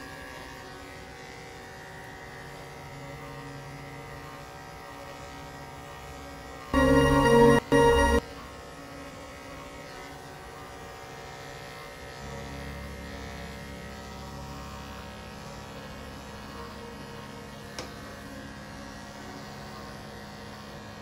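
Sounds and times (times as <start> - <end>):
electric dog clippers humming: 0.0 - 21.0.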